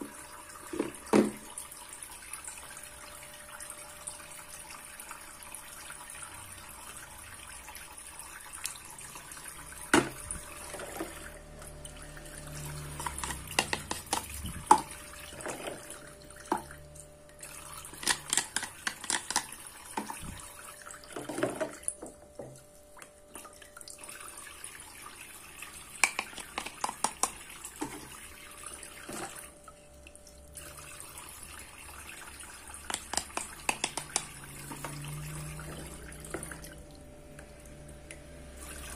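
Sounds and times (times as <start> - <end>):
faucet trickling water: 0.0 - 38.9
plastic clicks and taps: 18.0 - 20.2, 26.0 - 27.4, 32.9 - 34.4.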